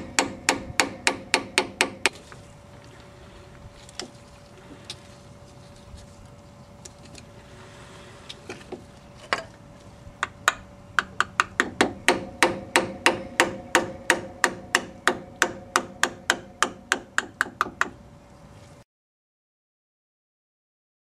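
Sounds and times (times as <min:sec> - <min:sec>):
hammer striking steel punch: 0:00.0 - 0:02.2, 0:10.2 - 0:17.9.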